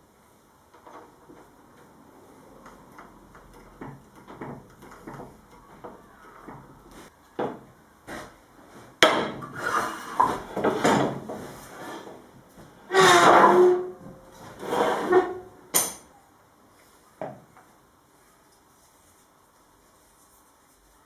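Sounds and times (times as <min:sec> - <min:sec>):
metal clamp bars scraping wood: 0:12.9 - 0:15.6.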